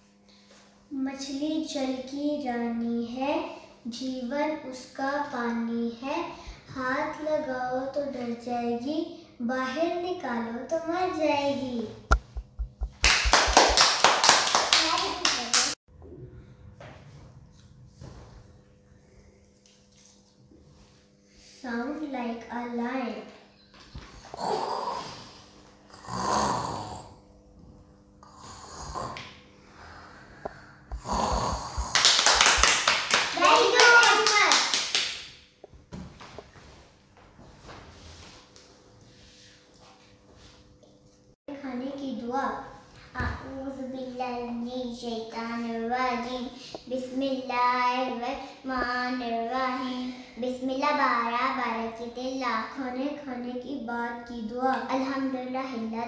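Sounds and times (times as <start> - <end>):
boy roaring like a lion: 24.3 - 25.3, 26.0 - 27.2, 31.0 - 32.0
child chanting a prayer: 33.3 - 34.7, 41.5 - 56.0.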